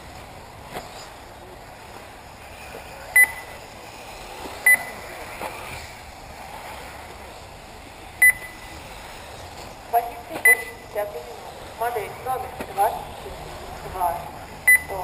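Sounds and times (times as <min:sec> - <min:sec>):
short electronic beeps: 0:03.2 - 0:03.6, 0:04.6 - 0:05.0, 0:08.2 - 0:08.7, 0:10.4 - 0:10.9, 0:14.6 - 0:15.0.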